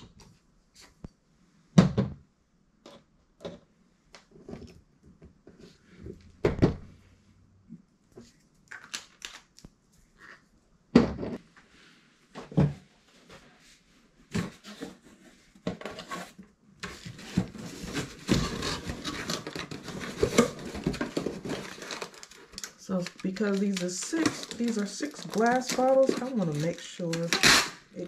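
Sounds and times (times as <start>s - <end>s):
packing material crinkling: 17.1s - 28.0s.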